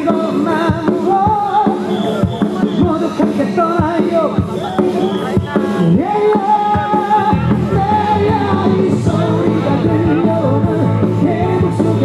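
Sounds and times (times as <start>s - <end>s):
pop band music: 0.0s - 12.0s
steady bass line: 2.6s - 12.0s.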